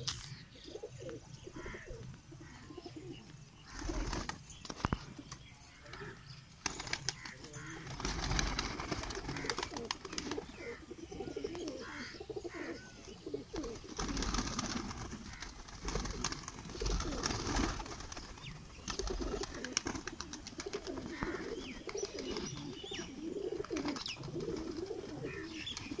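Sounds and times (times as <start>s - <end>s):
pigeons cooing: 0.0s - 26.0s
wings flapping: 3.7s - 5.2s, 5.9s - 10.8s, 13.6s - 22.7s, 23.4s - 26.0s.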